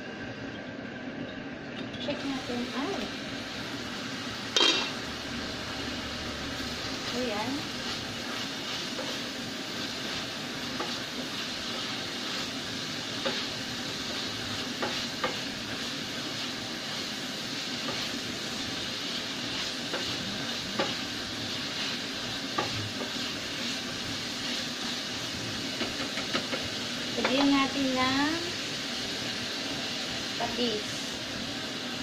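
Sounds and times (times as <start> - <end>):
meat sizzling in a saucepan: 0.0 - 32.0
spatula tapping a pan: 14.7 - 15.5, 19.9 - 21.0, 22.5 - 23.3, 25.8 - 27.5.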